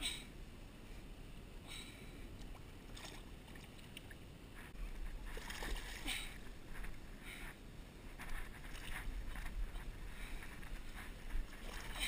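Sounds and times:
fish splashing in shallow water: 0:02.4 - 0:04.2, 0:05.2 - 0:06.4.

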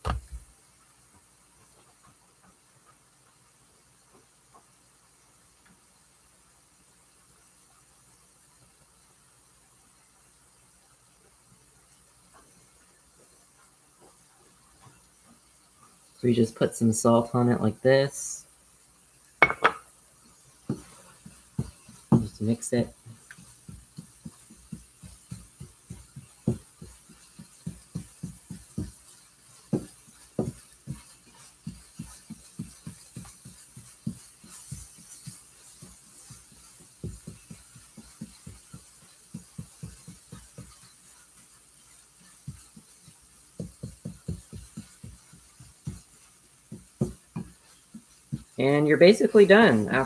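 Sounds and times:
utensil scraping frying pan: 0:19.4 - 0:50.0.

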